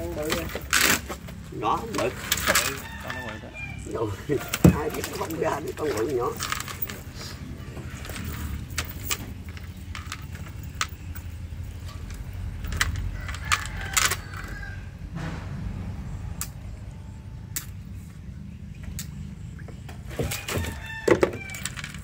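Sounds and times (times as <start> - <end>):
steady low rumble: 5.6 - 19.7.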